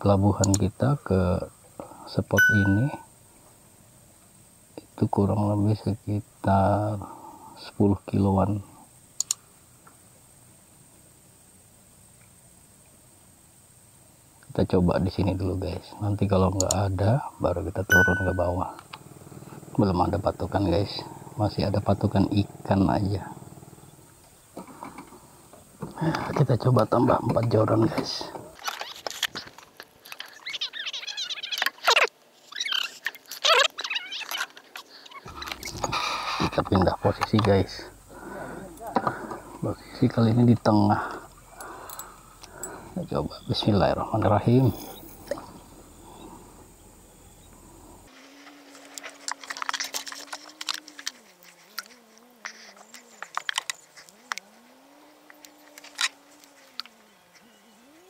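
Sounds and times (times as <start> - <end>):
high squeaky chirps: 2.4 - 3.0, 17.9 - 18.7, 30.1 - 38.0
fishing rods and reel clicking: 9.2 - 9.4, 16.6 - 16.9, 40.9 - 43.0, 48.6 - 57.6.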